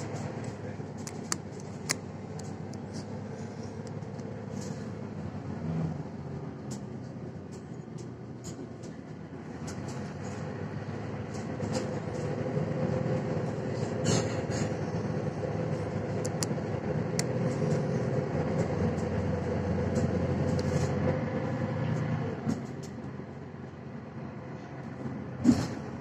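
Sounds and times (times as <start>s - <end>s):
interior clicks and rattles: 0.0s - 5.1s, 15.7s - 21.1s
bus engine and drivetrain hum: 0.0s - 26.0s.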